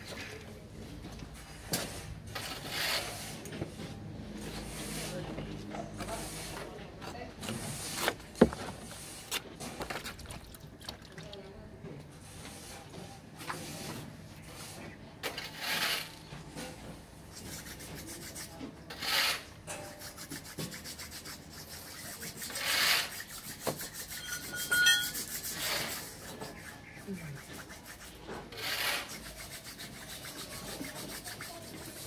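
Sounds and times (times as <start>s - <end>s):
rubbing strokes on metal cylinder: 17.3s - 32.0s.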